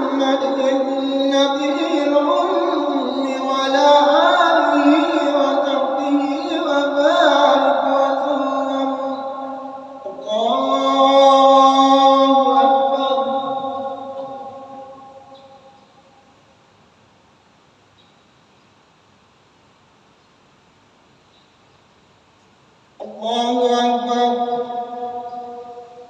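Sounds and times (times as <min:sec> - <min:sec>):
man chanting prayer: 0:00.0 - 0:15.5, 0:23.0 - 0:25.8.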